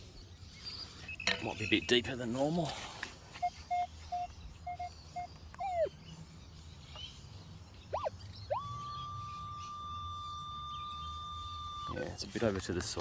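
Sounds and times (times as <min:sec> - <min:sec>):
metal detector beeps: 0:01.0 - 0:02.2, 0:03.3 - 0:05.8, 0:07.9 - 0:12.2.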